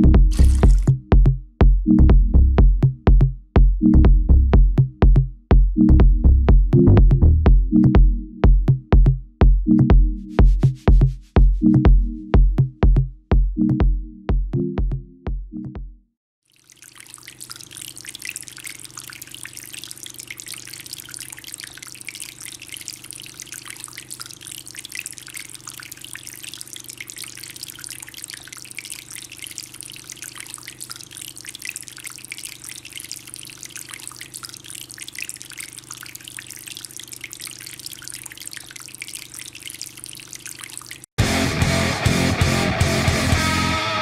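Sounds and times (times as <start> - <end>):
water trickling and dripping: 0.0 - 1.0, 16.4 - 41.1.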